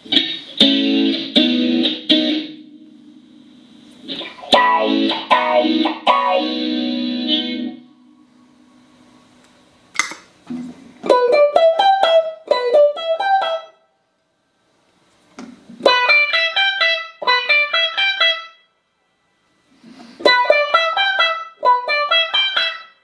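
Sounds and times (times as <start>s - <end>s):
electric guitar picked notes: 0.0s - 9.4s, 10.5s - 13.8s, 15.8s - 18.7s, 20.2s - 23.0s.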